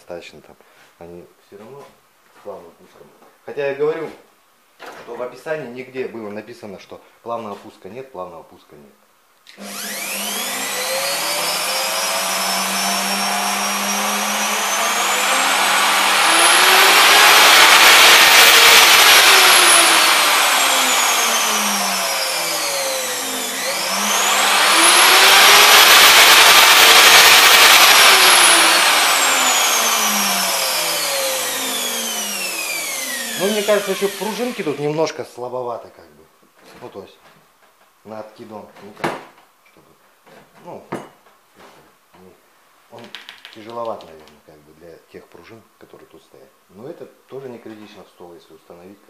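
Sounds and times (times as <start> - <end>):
router motor whining: 9.5 - 35.0.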